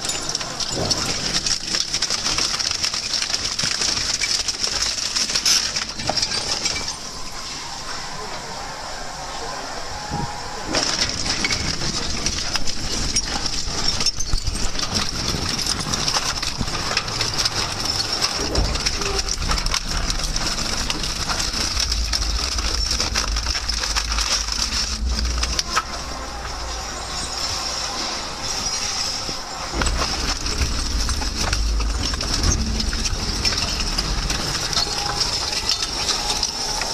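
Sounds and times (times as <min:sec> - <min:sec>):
metal bicycles crunching and snapping: 0:00.0 - 0:08.7, 0:09.4 - 0:36.9
steady machine noise: 0:00.0 - 0:36.9
deep machine rumble: 0:09.1 - 0:36.9.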